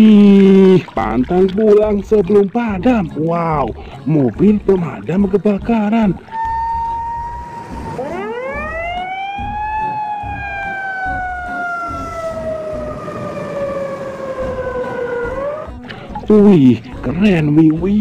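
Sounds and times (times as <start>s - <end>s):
low engine rumble: 0.7s - 16.7s
fire truck siren wailing: 6.2s - 15.9s.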